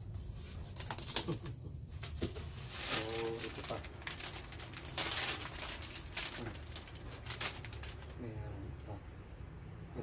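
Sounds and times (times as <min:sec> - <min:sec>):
wrapping rustling and crinkling: 0:00.0 - 0:08.4.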